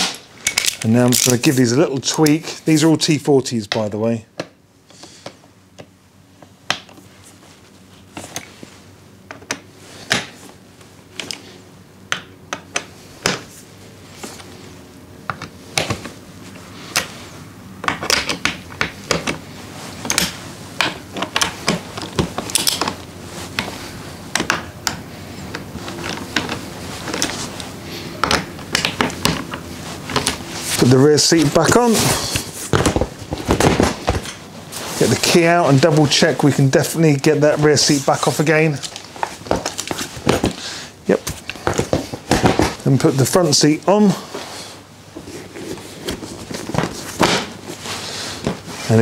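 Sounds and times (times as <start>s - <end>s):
metal tools clinking: 0.4s - 1.5s.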